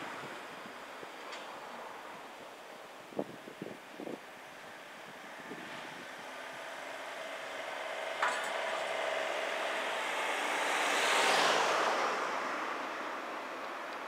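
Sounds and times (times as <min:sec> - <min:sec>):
vehicle passing: 0:05.4 - 0:13.6.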